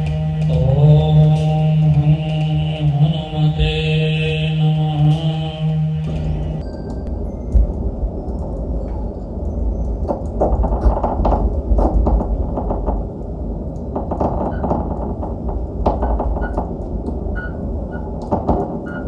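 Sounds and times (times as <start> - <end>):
deep rumbling drone: 0.0 - 19.0
crackles and clicks: 6.0 - 19.0.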